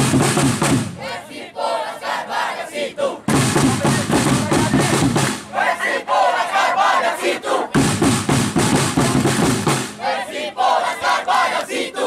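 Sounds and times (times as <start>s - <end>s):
drum beats: 0.0s - 1.2s, 3.2s - 5.8s, 7.7s - 10.2s
crowd chanting and singing: 0.0s - 12.0s
voice over megaphone: 3.6s - 5.2s.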